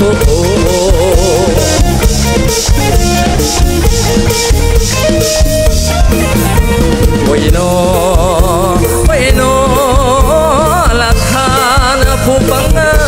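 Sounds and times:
drum kit steady beat: 0.0 - 13.0
live instrumental band music: 0.0 - 13.0.

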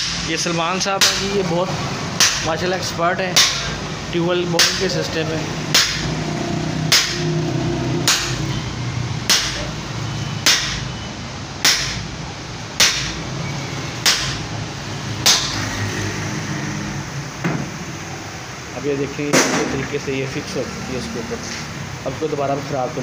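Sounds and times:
sledgehammer striking steel shaft: 1.0 - 1.4, 2.2 - 2.6, 3.4 - 3.8, 4.6 - 5.0, 5.7 - 6.2, 6.8 - 7.4, 8.0 - 8.6, 9.2 - 9.7, 10.4 - 10.9, 11.6 - 12.1, 12.8 - 13.2, 14.0 - 14.5, 15.2 - 15.8.

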